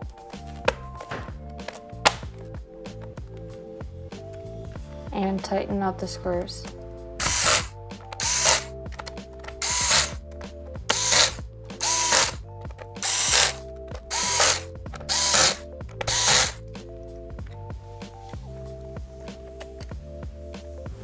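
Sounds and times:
background music: 0.0s - 21.0s
electric screwdriver whirring: 7.2s - 10.2s, 10.9s - 16.6s.

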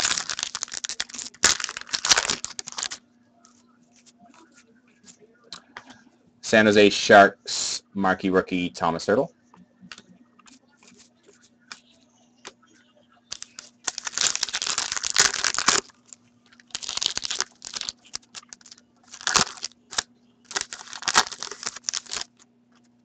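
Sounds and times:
foil wrapper tearing and crinkling: 0.0s - 3.0s, 13.3s - 22.4s.

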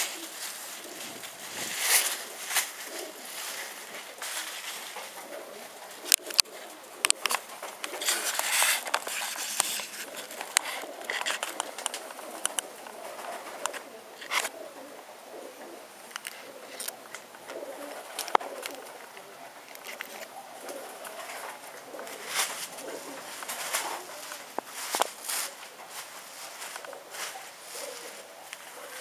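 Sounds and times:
short bursts of rustling: 0.0s - 14.6s
pigeons cooing: 0.0s - 29.0s.

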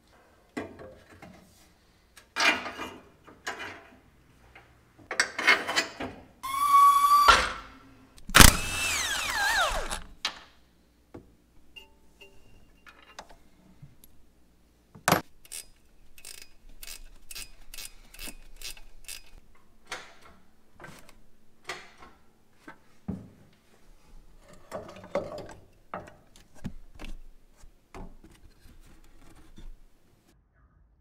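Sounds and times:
rustling of tools and parts: 8.2s - 10.2s, 12.2s - 14.2s, 15.0s - 30.2s
ratchet wrench clicking: 15.4s - 19.4s.

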